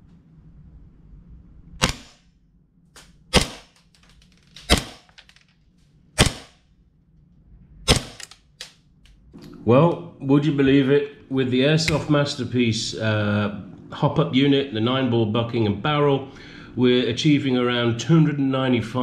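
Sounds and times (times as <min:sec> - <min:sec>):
airsoft pistol shots: 0:01.8 - 0:02.3, 0:03.3 - 0:03.8, 0:04.6 - 0:05.1, 0:06.2 - 0:06.6, 0:07.8 - 0:08.3.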